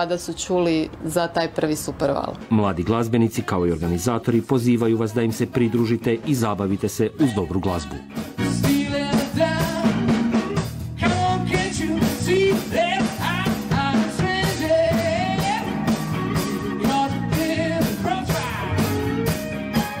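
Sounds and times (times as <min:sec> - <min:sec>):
person singing lead: 0:03.4 - 0:10.0, 0:11.0 - 0:19.3
rock band playing: 0:08.0 - 0:20.0.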